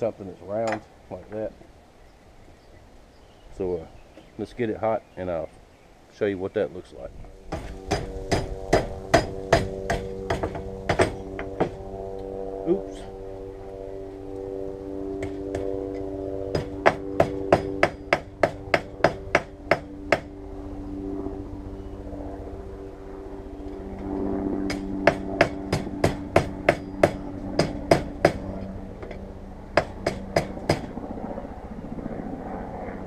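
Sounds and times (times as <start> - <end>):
steady hum: 0.0 - 33.0
hammer striking hot steel: 7.5 - 11.8, 16.5 - 20.3, 24.7 - 28.4.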